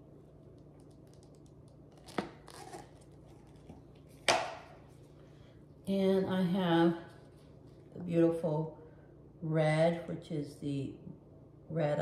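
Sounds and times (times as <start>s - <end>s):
plastic crinkle: 0.5s - 4.2s
plastic cup knocking down: 4.2s - 4.8s.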